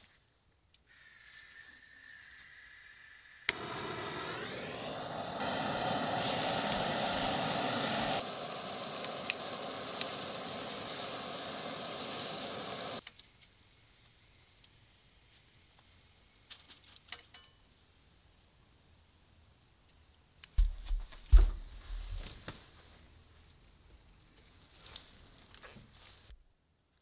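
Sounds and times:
propane torch flame hissing: 0.9 - 16.6
bacon sizzling on metal: 1.0 - 16.6.

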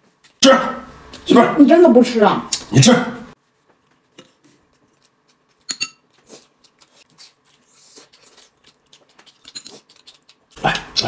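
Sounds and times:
chewing clicks and smacks: 4.9 - 11.0
dishware clink: 5.7 - 6.0.

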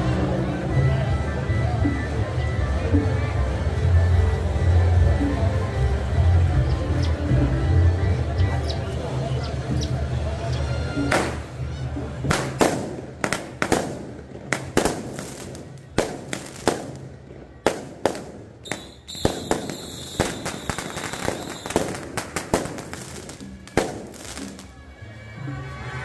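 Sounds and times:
firecrackers banging: 11.0 - 24.8.

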